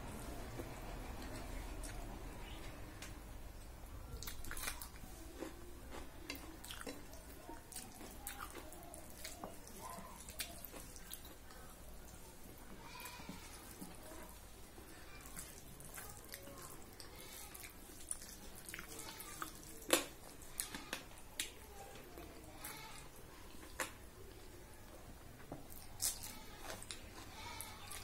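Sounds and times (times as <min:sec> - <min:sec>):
chewing: 0:00.3 - 0:02.8, 0:04.1 - 0:28.0
fingers mixing food wet clicks: 0:04.1 - 0:24.3.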